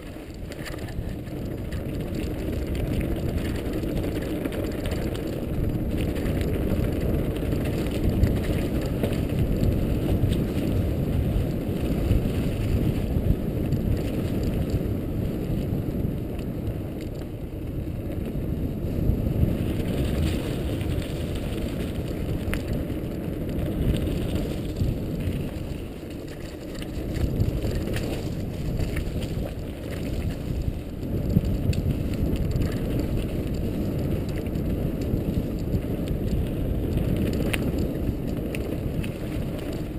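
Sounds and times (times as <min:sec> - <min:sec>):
bike rattling and clicking: 0:00.0 - 0:39.9
bike tyres rumbling over stones: 0:00.0 - 0:39.9.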